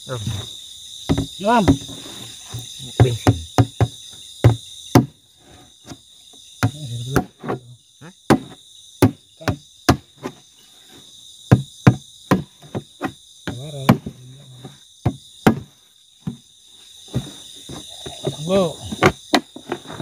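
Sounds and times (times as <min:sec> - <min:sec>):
night insects chorus: 0:00.0 - 0:20.0
sharp knocks on wood: 0:01.1 - 0:05.2, 0:06.6 - 0:07.6, 0:08.3 - 0:10.4, 0:11.5 - 0:16.4, 0:18.9 - 0:20.0.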